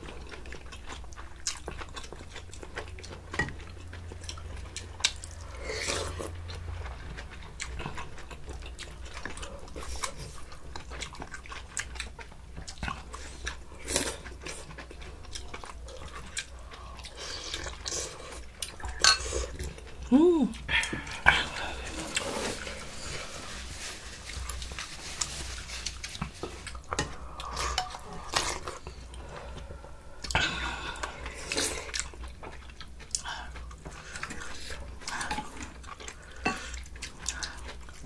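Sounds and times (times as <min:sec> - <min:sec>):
people chewing food: 0:00.0 - 0:38.0.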